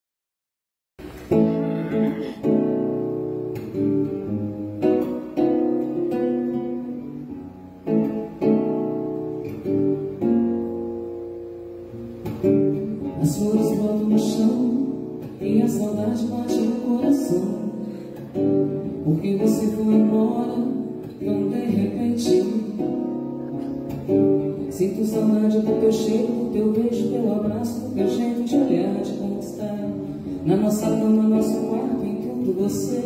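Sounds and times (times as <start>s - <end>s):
nylon-string guitar chords: 1.0s - 33.0s.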